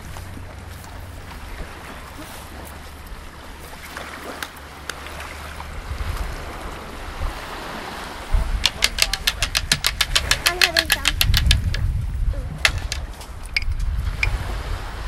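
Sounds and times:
small waves lapping on beach: 0:00.0 - 0:09.5, 0:12.5 - 0:15.0
wind rumbling on microphone: 0:00.0 - 0:15.0.

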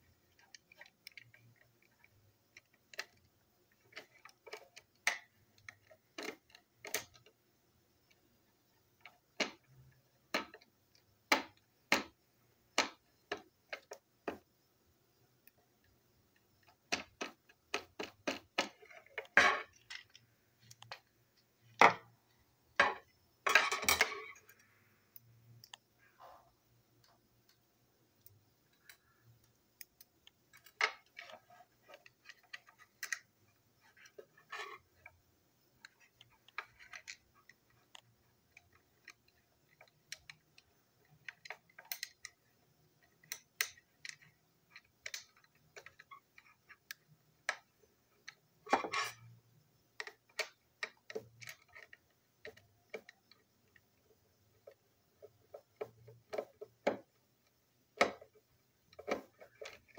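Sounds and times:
screwdriver and plastic toy clicks: 0:02.5 - 0:07.3, 0:35.8 - 0:42.4, 0:43.0 - 0:49.3, 0:58.9 - 0:59.9.

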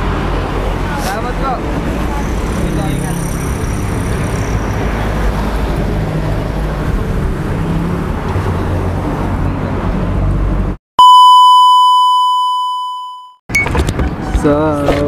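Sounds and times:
electronic beep tone: 0:11.0 - 0:13.7.

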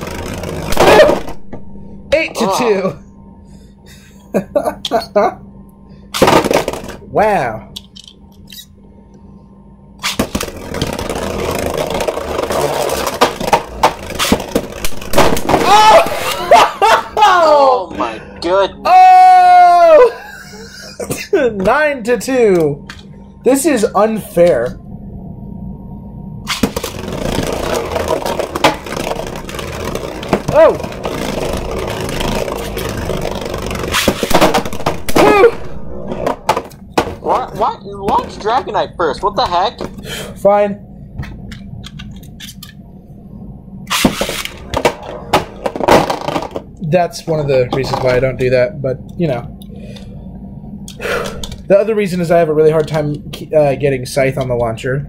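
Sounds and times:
spinning tops whirring and scraping: 0:10.0 - 0:16.9, 0:26.5 - 0:37.2, 0:43.9 - 0:46.7
top launcher rip: 0:43.9 - 0:44.6.

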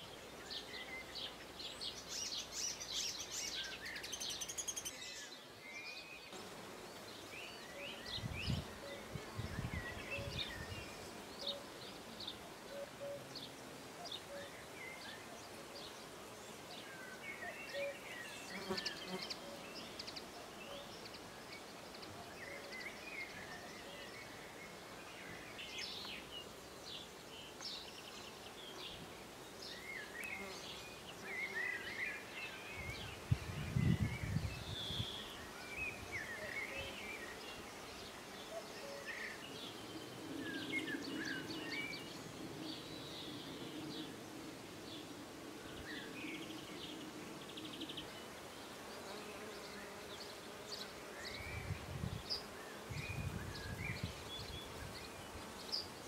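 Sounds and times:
songbirds chirping and singing: 0:00.0 - 0:56.0.

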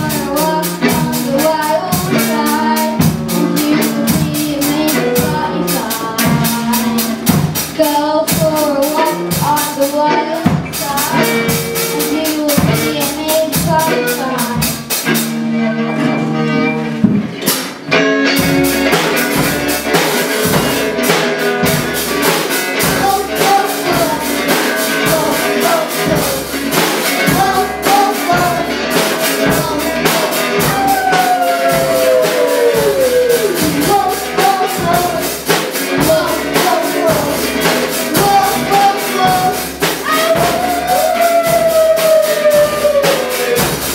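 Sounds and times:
drum kit: 0:00.0 - 0:43.9
electric guitar: 0:00.0 - 0:43.9
girl singing lead: 0:00.0 - 0:43.9.

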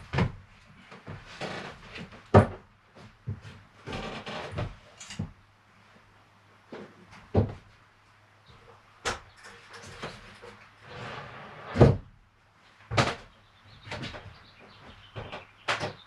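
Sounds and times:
objects knocking and thumping: 0:02.0 - 0:05.3, 0:06.7 - 0:07.7, 0:12.9 - 0:16.0
scraping rustle: 0:09.3 - 0:11.8.

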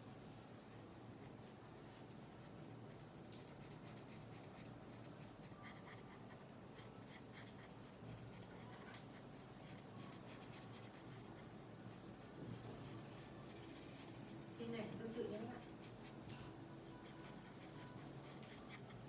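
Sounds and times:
marker scratching on paper: 0:03.3 - 0:11.5, 0:12.2 - 0:19.0.

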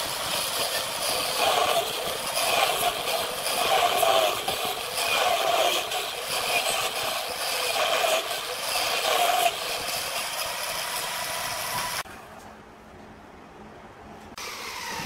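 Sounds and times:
wood lathe cutting rattling scrape: 0:00.0 - 0:12.0.

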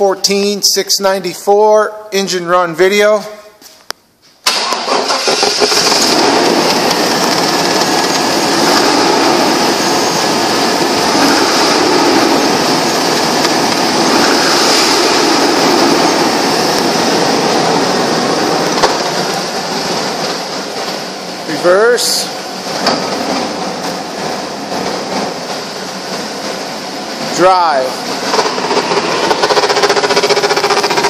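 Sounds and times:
car engine idling: 0:04.5 - 0:31.0.

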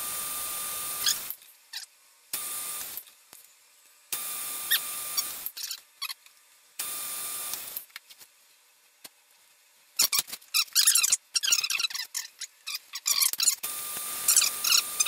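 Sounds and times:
lathe cutting wood: 0:00.0 - 0:01.3, 0:04.2 - 0:05.4, 0:13.6 - 0:15.0
thin whine: 0:00.0 - 0:03.5, 0:04.1 - 0:06.2, 0:12.0 - 0:15.0.

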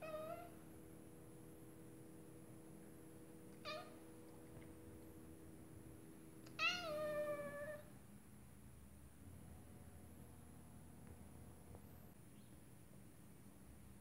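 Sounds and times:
cat meowing: 0:00.0 - 0:00.5, 0:03.6 - 0:04.0, 0:06.5 - 0:07.9.

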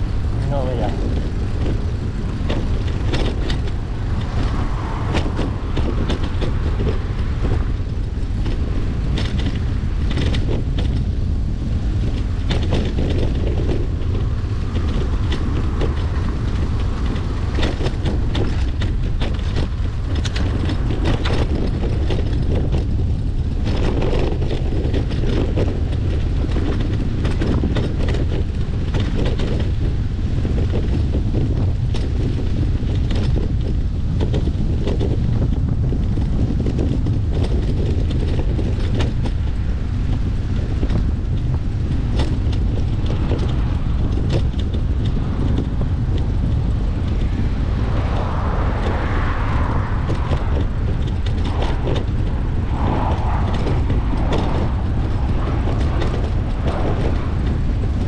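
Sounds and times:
bike clicks and rattles: 0:00.0 - 0:58.0
wind rumble on microphone: 0:00.0 - 0:58.0.

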